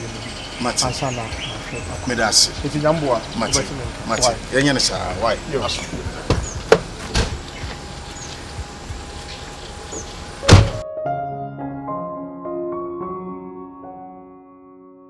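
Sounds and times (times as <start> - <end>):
outdoor background noise: 0.0 - 10.8
slow keyboard melody: 0.0 - 15.0
car door slamming: 5.9 - 7.9, 9.9 - 10.8.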